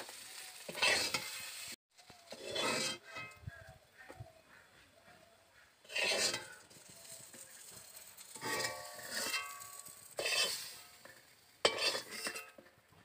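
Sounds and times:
metal spatula scraping a pan: 0.0s - 3.6s, 5.6s - 12.8s
metal utensils clanking: 5.9s - 12.7s.

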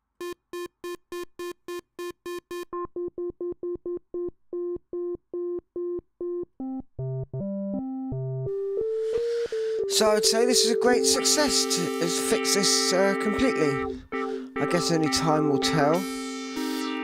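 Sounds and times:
synthesizer repeating short note: 9.9s - 17.0s.

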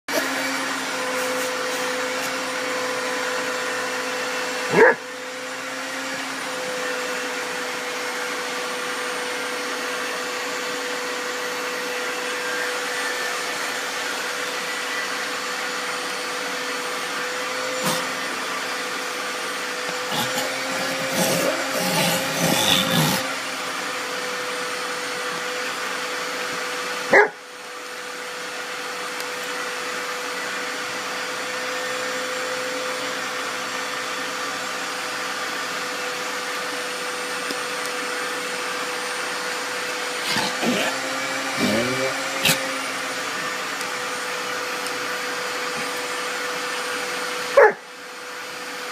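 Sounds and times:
vacuum cleaner humming: 0.0s - 48.9s
puppy whining: 4.6s - 5.1s, 19.8s - 23.3s, 27.1s - 27.4s, 40.0s - 43.6s, 47.5s - 47.8s.

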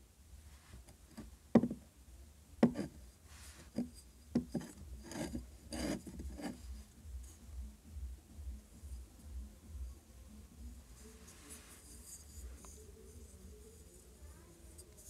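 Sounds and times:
fingers tapping clay pot: 1.1s - 1.8s, 2.6s - 3.0s, 3.7s - 6.6s
fingers scratching clay pot: 2.6s - 7.4s, 11.0s - 15.0s.

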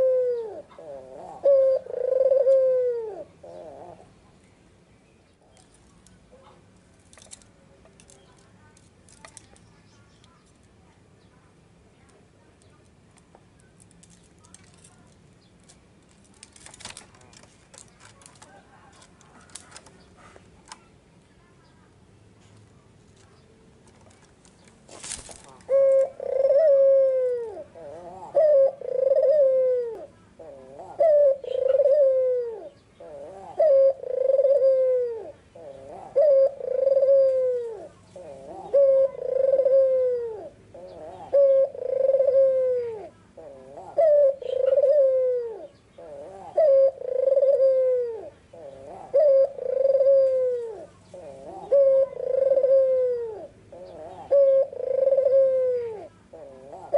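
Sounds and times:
dove cooing: 0.0s - 4.2s, 25.1s - 56.9s.

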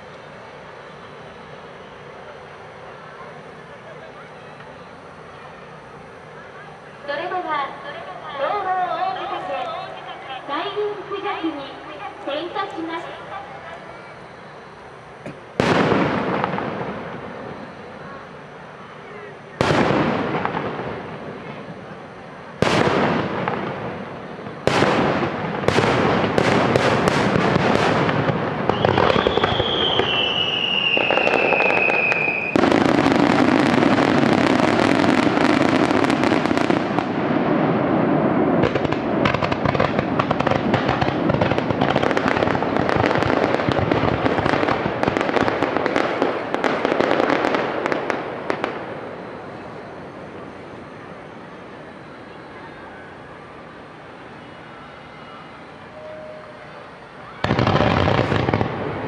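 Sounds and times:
firework bangs: 0.0s - 52.3s, 55.4s - 59.0s
fireworks crackling and popping: 0.0s - 59.0s
firework whistle falling in pitch: 28.6s - 37.1s, 49.1s - 59.0s.

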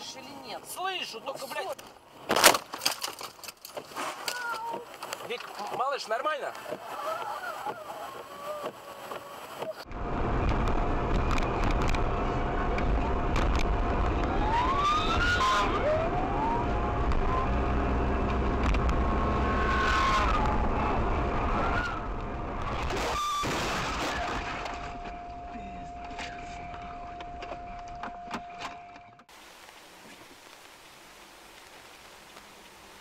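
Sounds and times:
car road and engine rumble: 0.0s - 33.0s
police siren wails: 13.8s - 18.2s, 19.3s - 22.2s.

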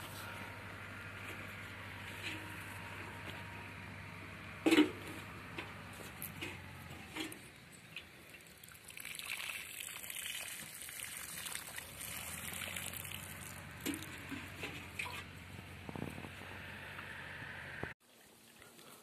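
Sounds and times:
water trickling onto soil: 7.8s - 15.2s.

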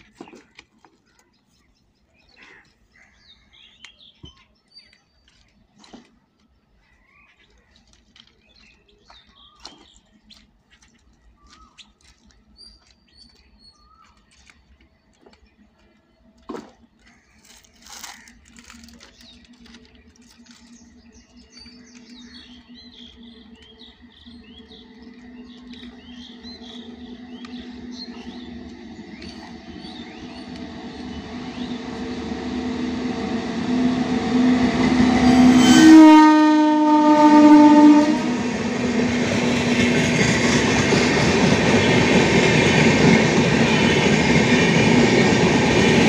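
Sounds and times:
birds chirping and calling: 8.5s - 14.4s, 20.2s - 32.2s
electric locomotive hum: 17.3s - 46.0s.

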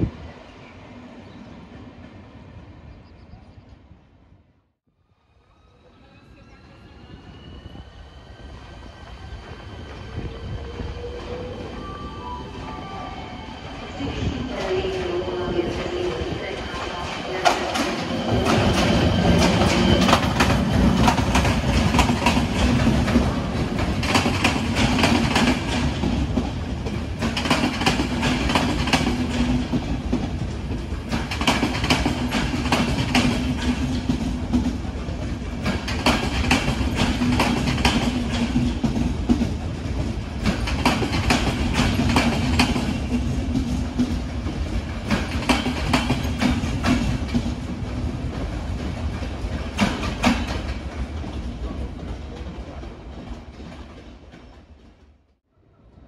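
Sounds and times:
train low hum: 0.0s - 56.0s
train wheels clicking over rail joints: 17.4s - 55.2s.

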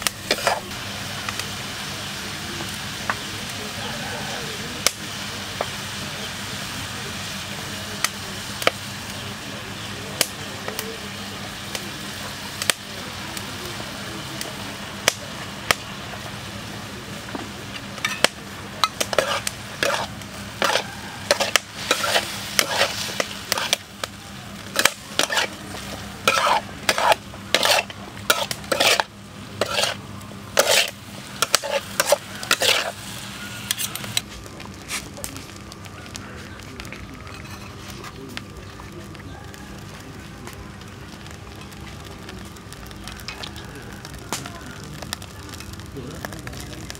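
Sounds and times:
spatula scraping a wok: 0.0s - 0.8s, 17.7s - 24.0s, 24.6s - 34.3s, 37.2s - 38.2s
vegetables sizzling in a wok: 0.0s - 46.9s.

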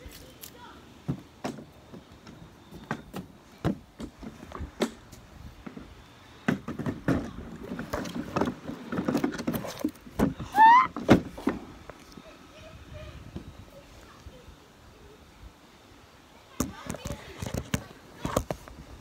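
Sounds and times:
climbing on plastic slide: 1.1s - 11.7s.

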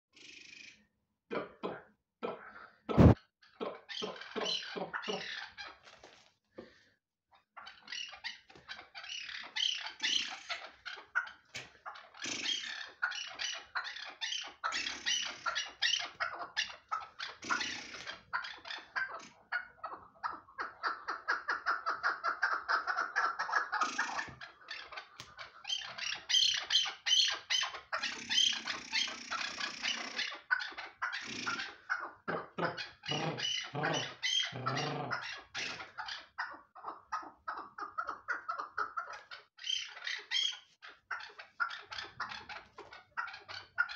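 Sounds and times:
partridge clucking: 2.9s - 3.2s.

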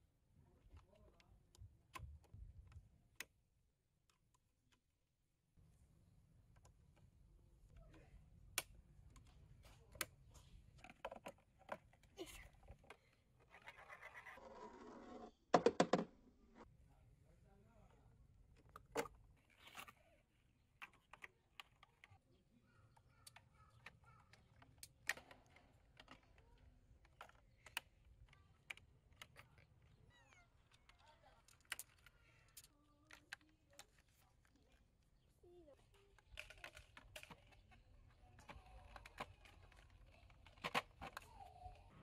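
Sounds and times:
plastic track pieces clicking: 23.1s - 34.2s, 36.1s - 41.8s.

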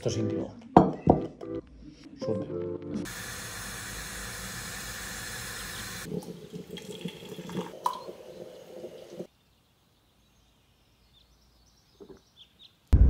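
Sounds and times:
coffee pouring into mugs: 3.1s - 9.3s
moka pot hissing: 3.1s - 9.3s.

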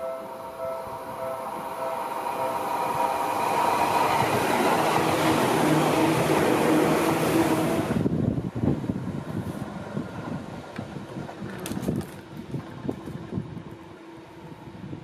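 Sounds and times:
electric train passing: 0.0s - 15.0s
wind on microphone: 2.8s - 6.5s, 7.2s - 15.0s.

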